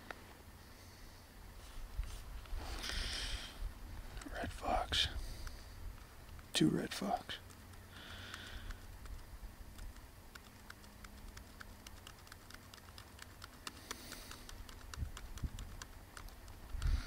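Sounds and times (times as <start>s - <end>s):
laptop keys clicking: 7.4s - 17.0s.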